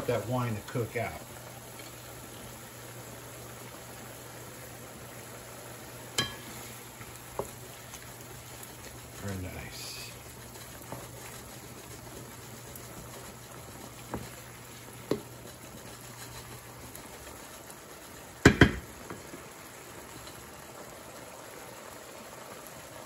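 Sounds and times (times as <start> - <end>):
sauce simmering in a skillet: 0.0 - 23.0
spatula knocking on pan: 15.0 - 15.3, 18.4 - 18.9.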